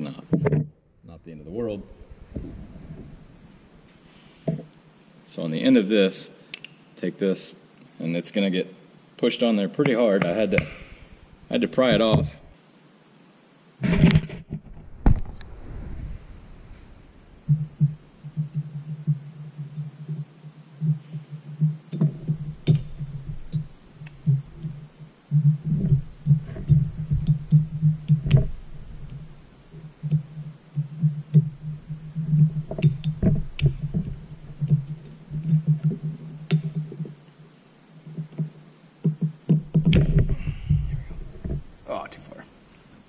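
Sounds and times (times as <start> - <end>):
pulsing low hum: 14.6 - 19.3.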